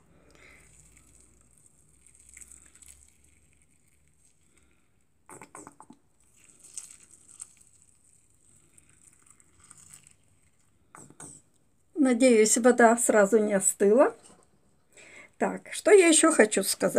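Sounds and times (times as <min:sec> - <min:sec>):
water trickling into soil: 0:00.1 - 0:11.0.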